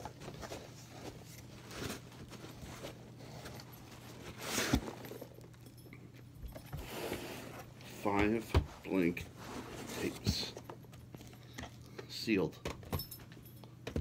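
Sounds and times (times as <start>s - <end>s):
rustling in cardboard box: 0.0s - 5.3s, 8.8s - 10.6s
low steady hum: 0.0s - 14.0s.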